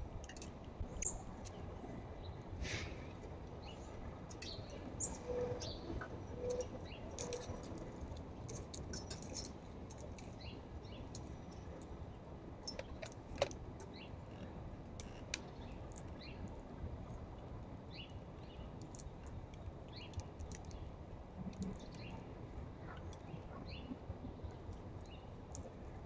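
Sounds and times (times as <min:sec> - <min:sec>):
small birds chirping: 0:03.6 - 0:07.6, 0:21.6 - 0:22.2, 0:25.0 - 0:25.7.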